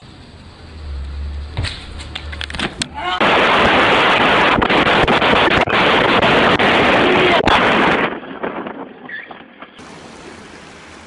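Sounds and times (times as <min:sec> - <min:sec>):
wind rushing over microphone: 0:01.6 - 0:09.8.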